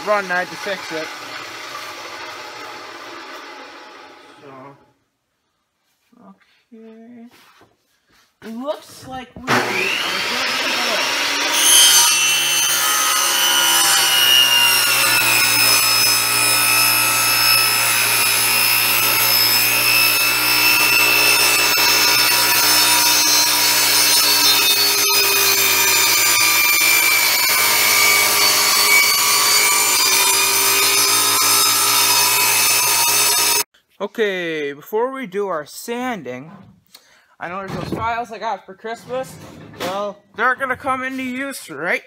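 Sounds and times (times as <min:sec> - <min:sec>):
table saw cutting wood: 0:00.0 - 0:04.6, 0:09.4 - 0:33.7.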